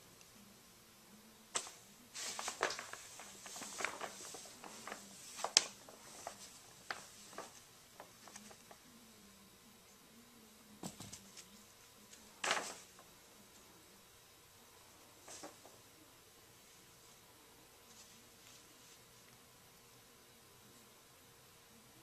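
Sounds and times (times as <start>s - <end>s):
paper bag rustling and crackling: 1.5s - 8.8s, 12.1s - 13.0s.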